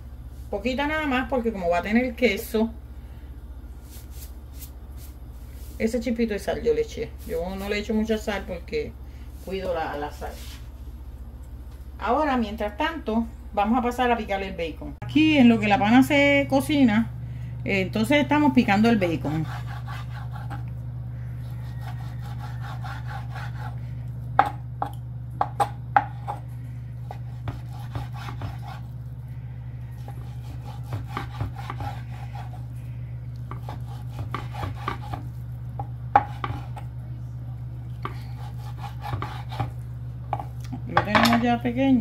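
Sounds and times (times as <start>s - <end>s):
steady low hum: 0.0s - 42.0s
knife sawing strokes: 19.3s - 20.6s, 21.7s - 23.8s, 27.0s - 28.9s, 30.0s - 32.7s, 33.5s - 35.3s, 38.1s - 39.8s.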